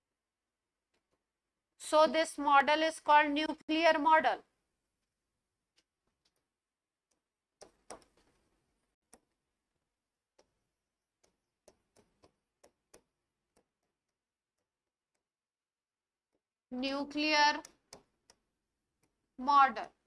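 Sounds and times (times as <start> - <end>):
pen tapping on a screen: 7.1 - 8.5, 10.3 - 15.3, 17.5 - 19.2.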